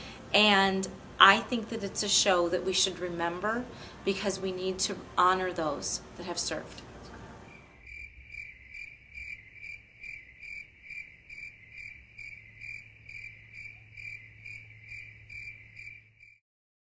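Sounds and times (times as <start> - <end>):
steady low hum: 0.0 - 16.1
cricket chirping: 7.5 - 16.4.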